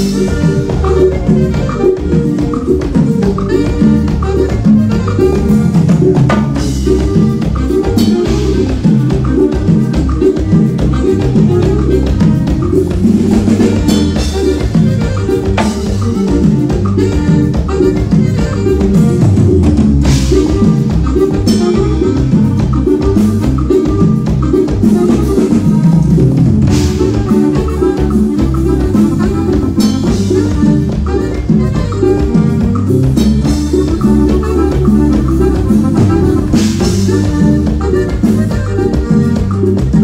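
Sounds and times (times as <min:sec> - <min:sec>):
bass line: 0:00.0 - 0:40.0
drum kit beat: 0:00.0 - 0:40.0
live latin dance band: 0:00.0 - 0:40.0.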